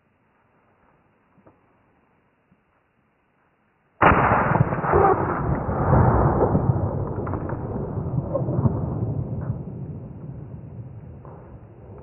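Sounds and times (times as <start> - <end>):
shotgun shot: 4.0 - 11.9.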